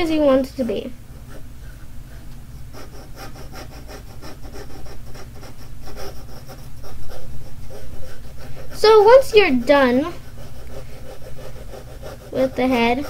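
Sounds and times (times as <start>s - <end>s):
pencil scratching on paper: 1.2s - 13.0s.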